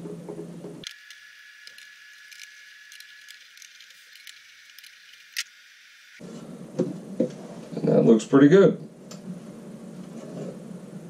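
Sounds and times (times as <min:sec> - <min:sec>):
screws and nuts clicking: 0:00.8 - 0:05.6.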